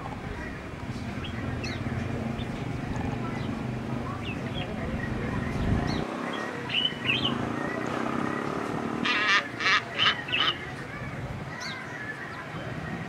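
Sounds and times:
small birds chirping: 0:00.0 - 0:13.0
hornbill harsh calls: 0:06.7 - 0:10.8.

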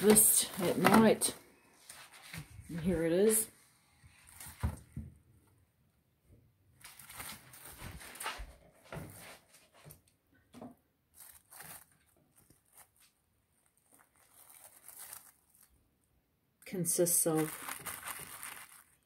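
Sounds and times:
rustling of cling film: 0:00.0 - 0:03.5, 0:04.1 - 0:04.8, 0:06.8 - 0:09.9, 0:11.1 - 0:15.8, 0:17.0 - 0:19.0.

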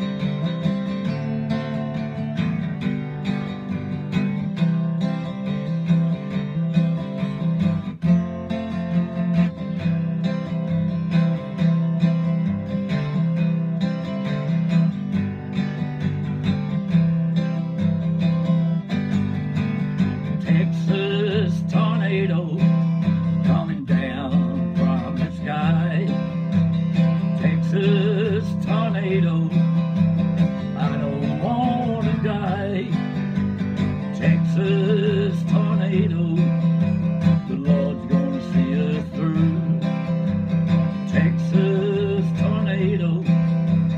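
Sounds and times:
acoustic guitar strumming: 0:00.0 - 0:43.9
man singing: 0:20.2 - 0:43.9.

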